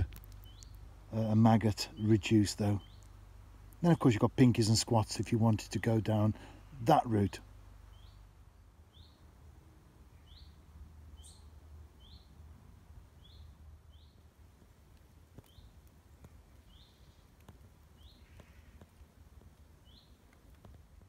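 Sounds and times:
small bird chirping: 0:00.0 - 0:04.4, 0:07.4 - 0:09.3, 0:10.1 - 0:12.4, 0:13.1 - 0:14.3, 0:15.4 - 0:18.9, 0:19.8 - 0:20.8.

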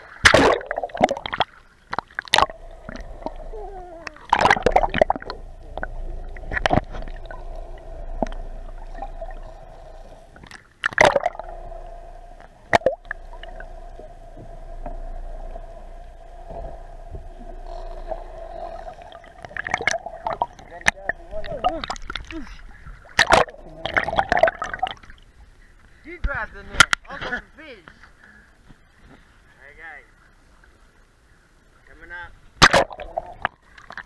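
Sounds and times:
muffled underwater water rushing: 0:00.0 - 0:26.0, 0:32.4 - 0:34.0
steady hum: 0:00.3 - 0:26.1.

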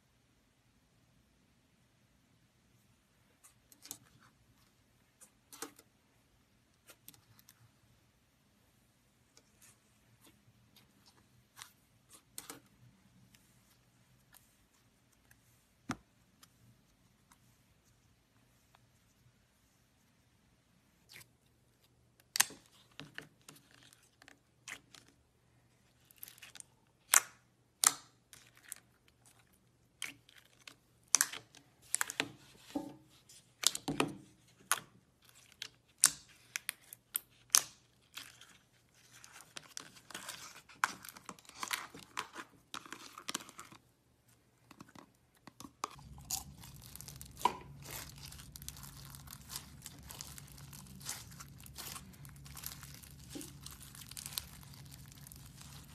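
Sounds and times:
slime crackling and popping: 0:45.9 - 0:55.9.

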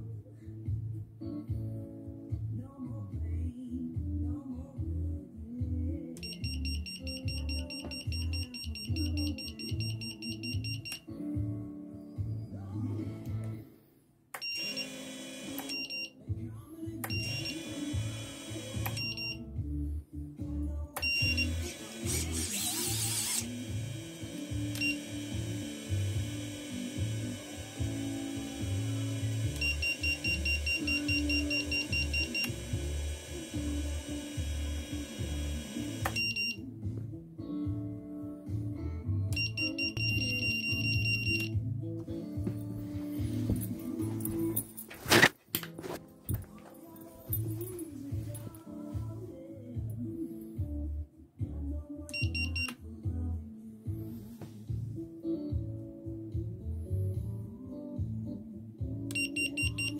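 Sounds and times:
background music: 0:00.0 - 0:59.9
high-pitched buzzer beeps: 0:06.2 - 0:11.0, 0:14.4 - 0:16.2, 0:17.1 - 0:19.5, 0:21.0 - 0:36.6, 0:39.4 - 0:41.5, 0:52.1 - 0:52.7, 0:59.1 - 0:59.9
drone motors whining: 0:21.5 - 0:30.7.

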